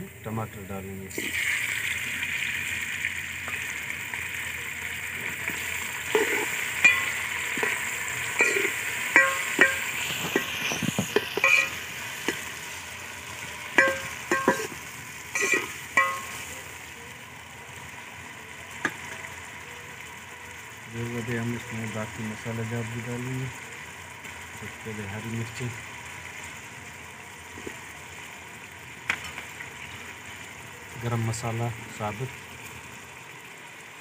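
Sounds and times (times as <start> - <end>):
tomatoes sizzling in hot fat: 0.0 - 34.0
metal spoon knocking against pot: 8.4 - 9.9, 11.2 - 11.8, 13.8 - 14.8, 15.4 - 16.4.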